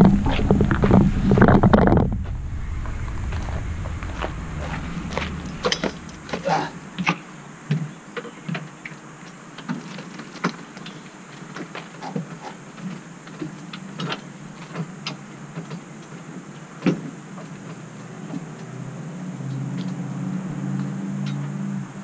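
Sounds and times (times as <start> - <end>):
low steady hum: 0.0 - 7.5.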